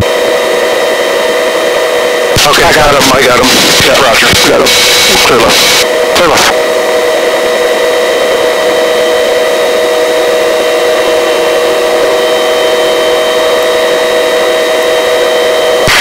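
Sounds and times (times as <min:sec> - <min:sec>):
helicopter hovering: 0:00.0 - 0:16.0.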